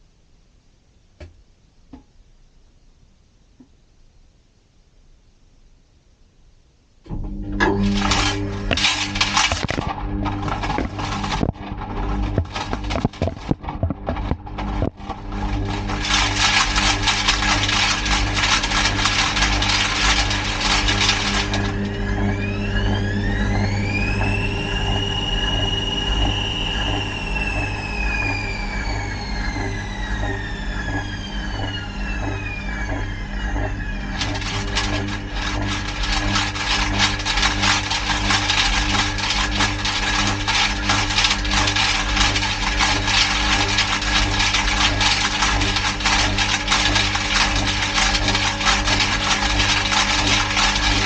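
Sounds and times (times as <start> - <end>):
motor whine rising in pitch: 7.1 - 51.0
washing machine motor hum: 7.1 - 51.0
drum rattling: 7.8 - 23.1, 34.2 - 51.0.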